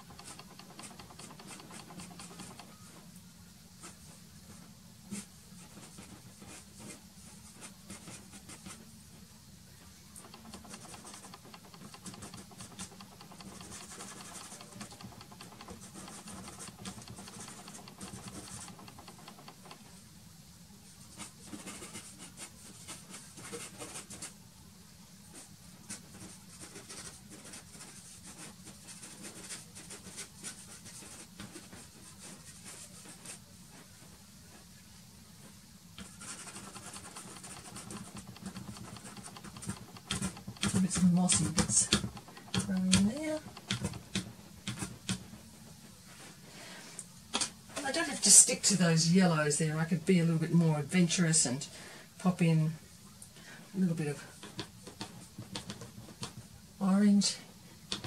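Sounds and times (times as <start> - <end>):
pastel stick scratching on board: 0.0 - 2.9, 10.2 - 19.9, 21.2 - 24.3, 36.0 - 45.4, 54.4 - 56.4.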